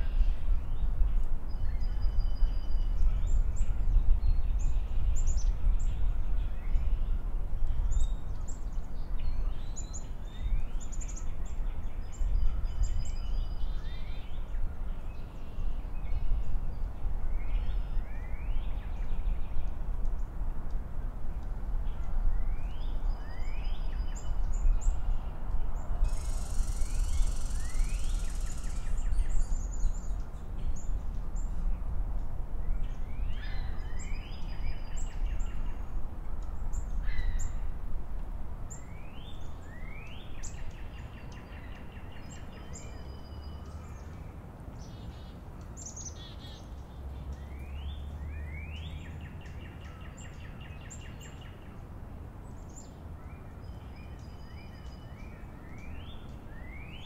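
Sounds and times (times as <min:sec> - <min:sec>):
songbirds chirping: 0:00.0 - 0:57.0.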